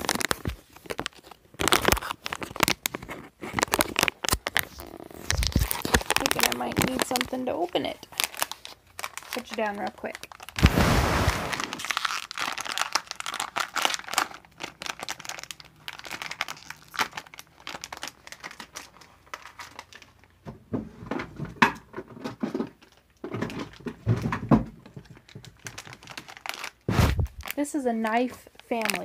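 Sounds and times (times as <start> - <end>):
muffled rustling and crinkling: 0.0 - 12.0, 17.9 - 29.0.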